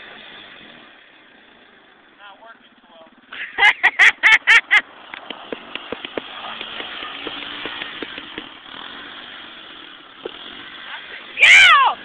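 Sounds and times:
quad engine running: 0.0 - 12.0
loud laughter: 3.4 - 4.8.

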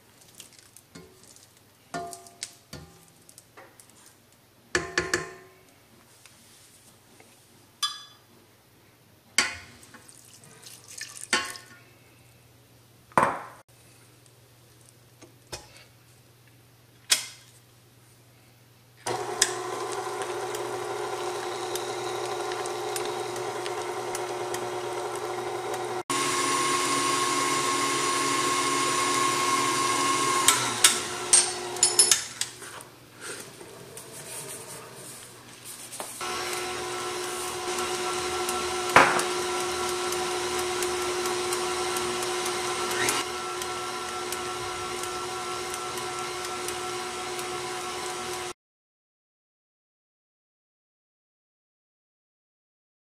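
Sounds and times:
stand mixer motor whirring: 19.1 - 32.0, 36.2 - 48.6.

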